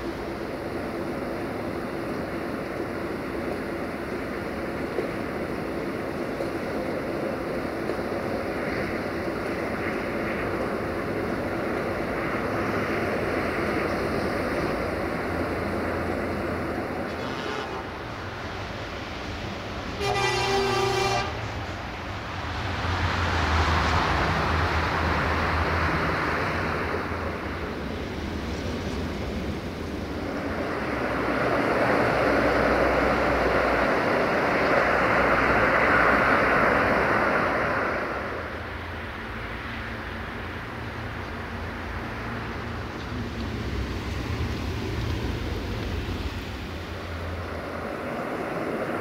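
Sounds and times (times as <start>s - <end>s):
train engine drone: 0.0s - 49.0s
wheels rushing on rails: 0.0s - 49.0s
locomotive horn blast: 17.1s - 18.1s, 20.0s - 21.6s.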